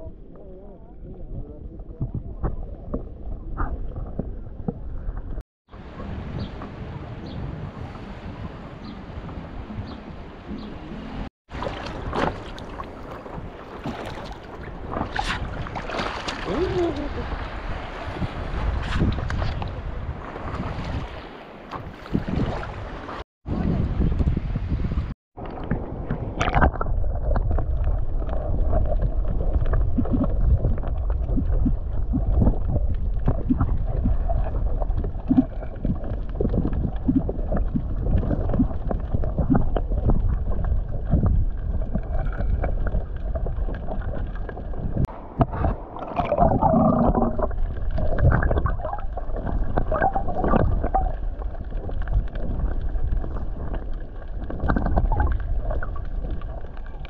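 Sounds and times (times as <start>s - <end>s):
underwater rumble of moving water: 0.0s - 57.0s
water gurgling: 25.4s - 57.0s.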